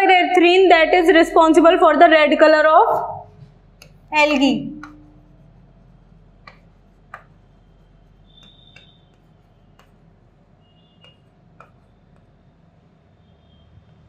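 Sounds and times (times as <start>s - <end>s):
tapping on a blackboard: 3.8s - 5.3s, 6.4s - 12.4s
high squeaks on a blackboard: 7.6s - 9.9s, 10.6s - 11.4s.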